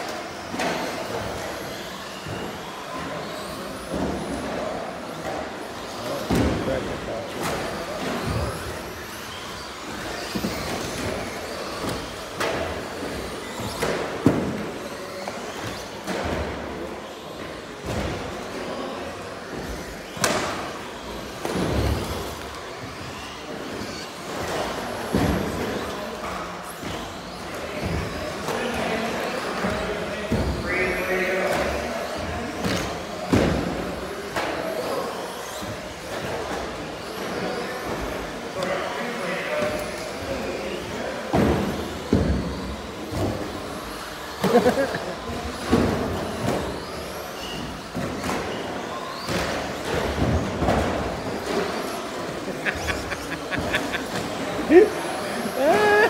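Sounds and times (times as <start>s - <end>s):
steady background noise: 0.0s - 56.0s
hall background noise: 35.8s - 56.0s.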